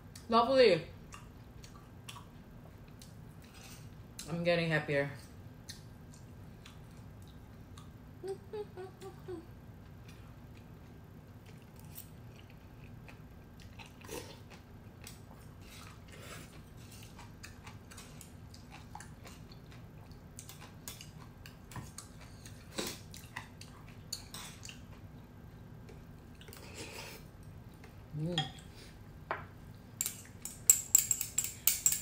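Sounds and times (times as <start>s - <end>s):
person chewing noodles: 5.6s - 8.0s, 9.8s - 25.2s
chopsticks and spoon clicking on bowl: 30.0s - 32.0s.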